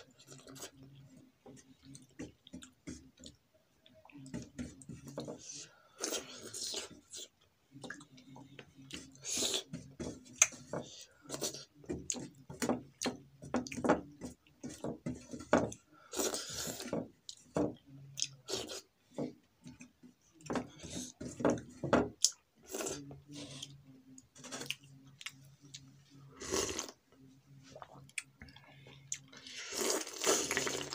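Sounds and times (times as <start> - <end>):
slurp: 26.4 - 27.0, 29.2 - 30.9.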